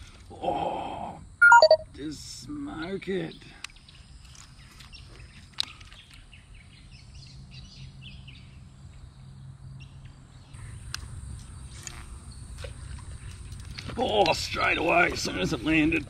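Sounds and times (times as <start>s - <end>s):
high insect drone: 0.0s - 1.4s, 8.9s - 16.0s.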